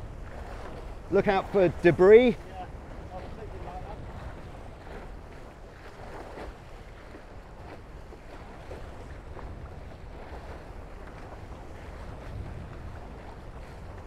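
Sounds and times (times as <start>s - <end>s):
water rushing and splashing past hulls: 0.0s - 14.0s
wind buffeting microphone: 0.0s - 14.0s.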